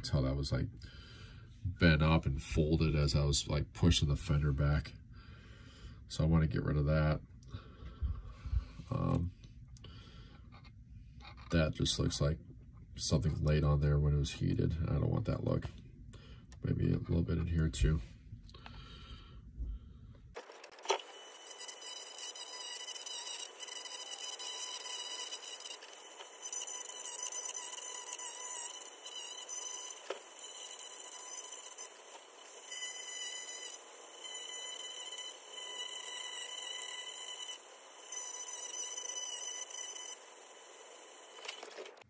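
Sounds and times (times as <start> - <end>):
bit grinding on plastic: 20.4 - 40.2
rotary tool whining: 20.4 - 42.0.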